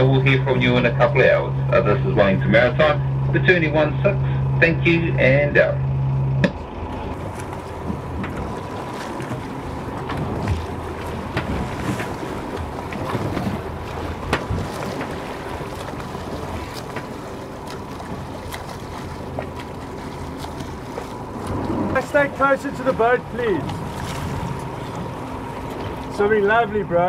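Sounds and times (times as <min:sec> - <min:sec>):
boat engine hum: 0:00.0 - 0:27.0
waves washing: 0:06.6 - 0:27.0.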